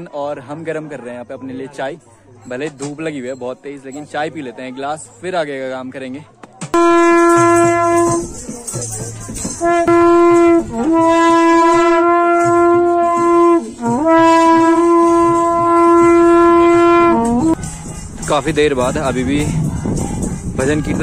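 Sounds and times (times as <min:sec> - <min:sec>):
long metal horn blasts: 0:06.8 - 0:21.0.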